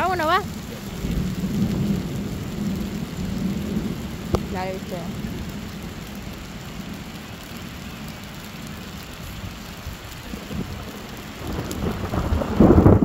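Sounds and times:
thunder rolling: 0.0s - 7.8s, 8.7s - 13.0s
rain hiss: 0.0s - 13.0s.

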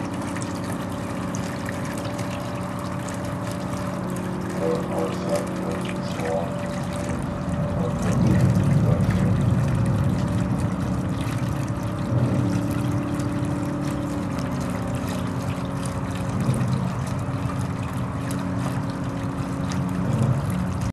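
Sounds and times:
ambient electronic soundtrack: 0.0s - 20.9s.

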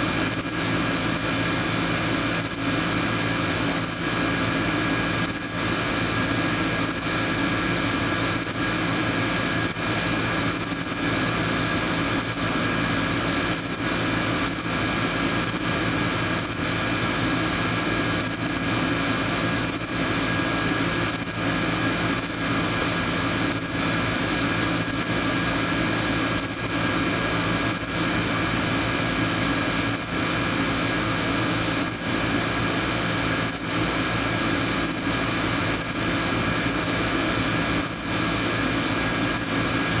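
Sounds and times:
steady machine hum: 0.0s - 40.0s
bird fledgling begging chips: 3.7s - 4.1s, 5.2s - 5.6s, 10.5s - 11.2s, 18.2s - 18.7s, 23.4s - 23.8s.

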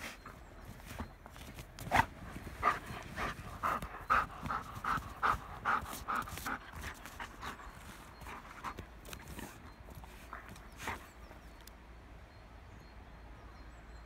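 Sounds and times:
dog panting: 1.8s - 11.6s.

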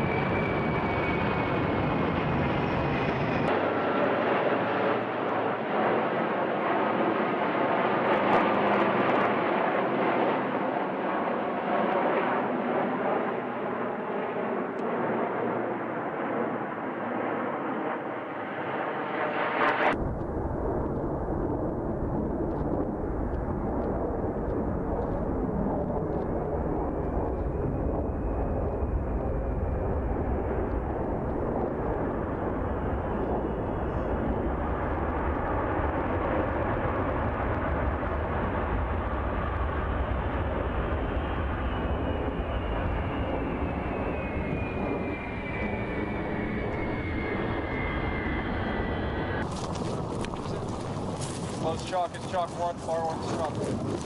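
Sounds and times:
aircraft engines running: 0.0s - 54.0s
faint high whine: 40.4s - 52.3s.

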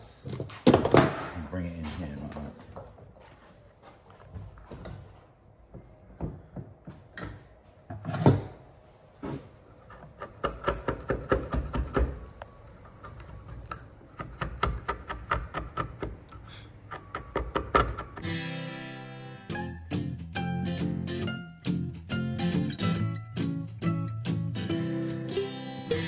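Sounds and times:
music: 18.2s - 26.0s.

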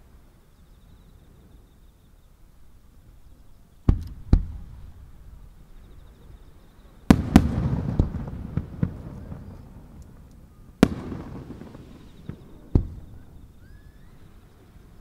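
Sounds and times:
firework cracks: 7.1s - 14.0s.

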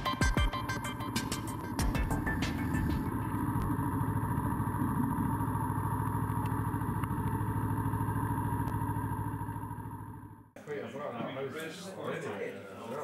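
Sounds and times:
motorcycle engine idling: 0.0s - 10.6s.

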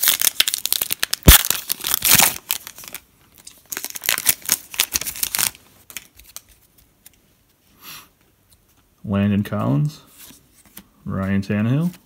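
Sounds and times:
foil wrapper crinkling and tearing: 0.0s - 6.5s.

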